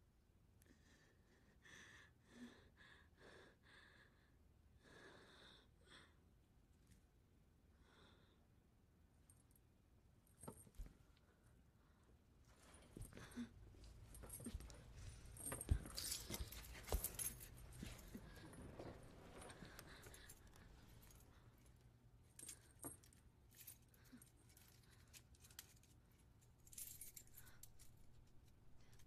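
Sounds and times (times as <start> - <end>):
metal chain rattling: 14.1 - 21.3, 22.3 - 29.0.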